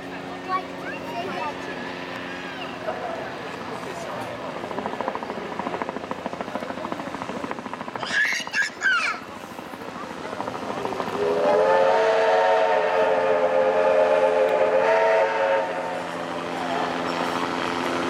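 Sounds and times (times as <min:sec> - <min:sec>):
steam locomotive chime whistle: 0:11.2 - 0:16.0.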